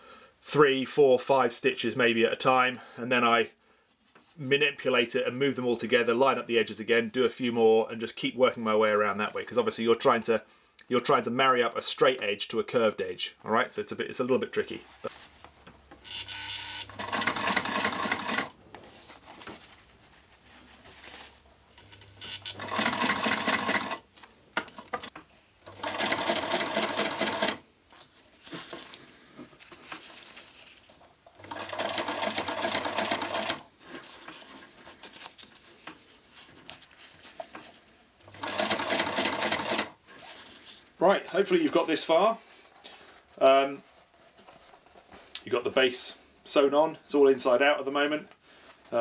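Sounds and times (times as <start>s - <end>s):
sewing machine stitching: 16.1s - 18.6s, 21.8s - 24.0s, 24.8s - 27.6s, 31.4s - 33.6s, 38.3s - 40.0s.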